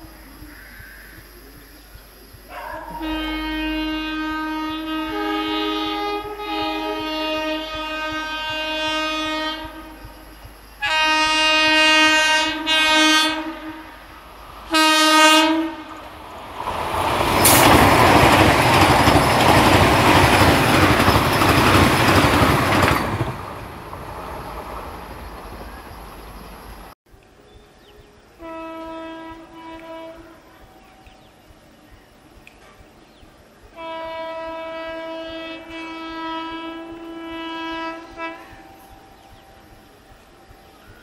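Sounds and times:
train rushing past: 0:02.5 - 0:41.0
train horn blasts: 0:02.6 - 0:16.1, 0:28.4 - 0:31.1, 0:33.7 - 0:40.6.

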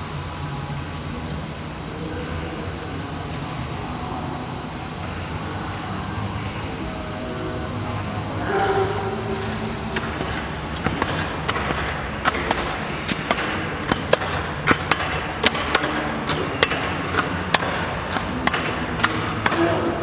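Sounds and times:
ice hall background noise: 0:00.0 - 0:20.0
skates clacking on ice: 0:09.4 - 0:20.0.

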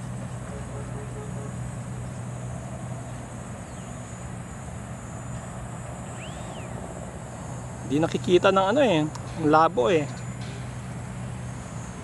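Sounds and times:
low hum: 0:00.0 - 0:08.4
high-pitched buzz: 0:04.0 - 0:08.0
rising and falling whistle: 0:06.0 - 0:06.8.

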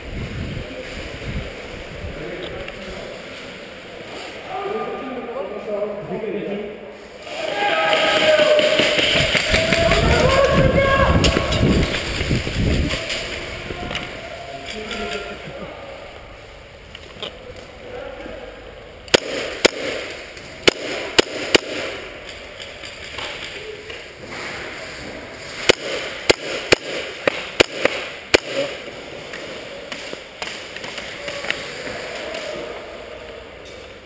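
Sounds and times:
airsoft gun shots: 0:19.1 - 0:22.1, 0:25.6 - 0:28.9.

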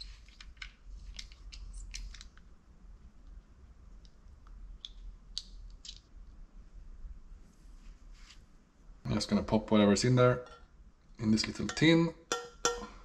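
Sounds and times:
small metal parts clicking: 0:00.0 - 0:02.4, 0:04.8 - 0:06.1.

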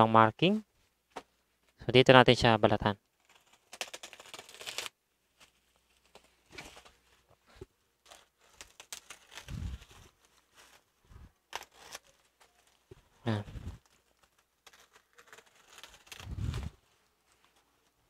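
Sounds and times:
plastic crinkling and tearing: 0:03.1 - 0:07.4, 0:08.0 - 0:18.0.

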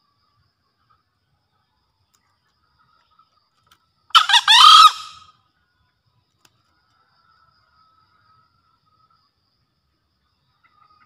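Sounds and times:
junglefowl crowing: 0:04.1 - 0:05.3.

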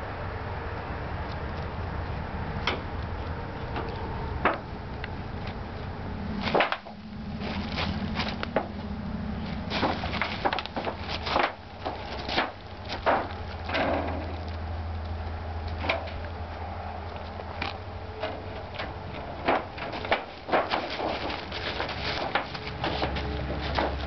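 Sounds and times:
steady low hum: 0:00.0 - 0:24.0
taps knocks and rustles: 0:02.6 - 0:04.7, 0:06.4 - 0:08.9, 0:09.6 - 0:14.6, 0:17.1 - 0:24.0.

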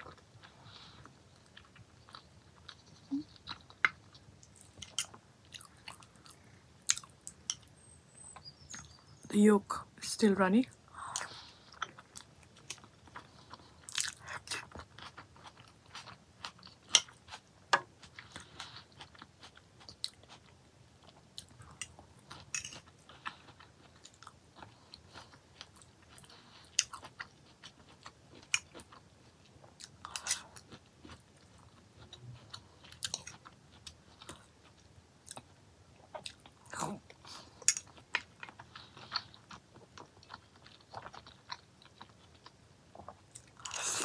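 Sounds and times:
chewing and biting food: 0:11.2 - 0:44.0.

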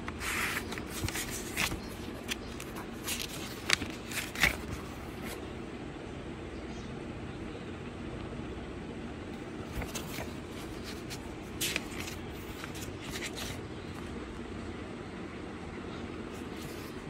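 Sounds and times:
book pages rustling: 0:00.0 - 0:05.5, 0:09.4 - 0:14.2, 0:16.3 - 0:17.0
steady low hum: 0:00.0 - 0:17.0.

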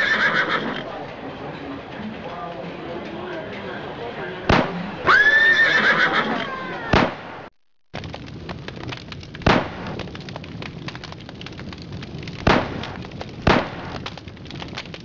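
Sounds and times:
revolver shots: 0:04.5 - 0:05.1, 0:06.9 - 0:07.5.

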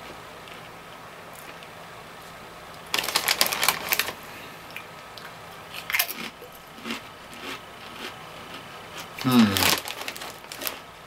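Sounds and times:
chip bag rustling and crackling: 0:02.8 - 0:04.3, 0:05.8 - 0:10.9.

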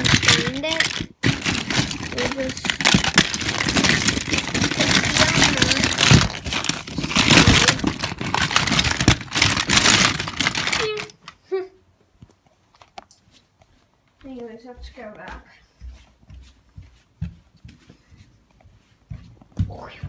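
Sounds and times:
packaging crinkling: 0:00.0 - 0:11.4
plastic toys clicking: 0:00.0 - 0:11.4.

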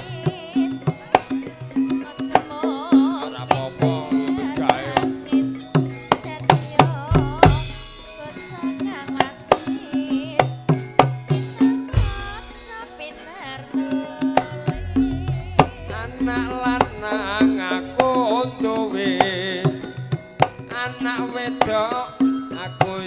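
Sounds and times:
hand drum strokes: 0:00.0 - 0:22.1
metallophone tones: 0:00.0 - 0:23.0
wavering melody line: 0:00.0 - 0:23.0
deep bass stroke: 0:14.7 - 0:18.2.

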